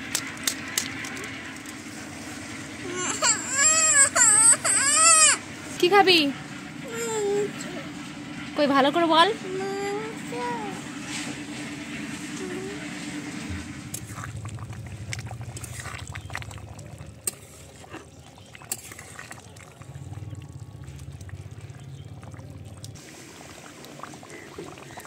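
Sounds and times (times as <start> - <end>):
gravy bubbling in a pan: 0.0 - 2.9, 10.9 - 25.0
low background hum: 0.0 - 25.0.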